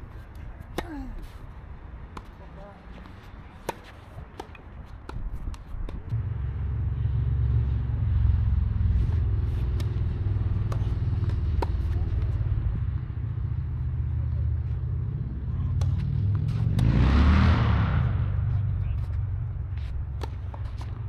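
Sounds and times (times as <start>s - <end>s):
vehicle engine rumble: 0.0s - 21.0s
tennis balls bouncing: 0.3s - 1.4s, 2.0s - 6.2s, 9.3s - 13.3s, 15.7s - 16.9s, 19.7s - 21.0s.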